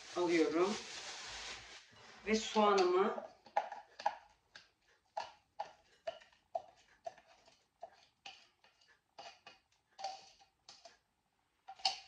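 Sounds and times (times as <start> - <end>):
spatula tapping a plastic cup: 2.7 - 10.9.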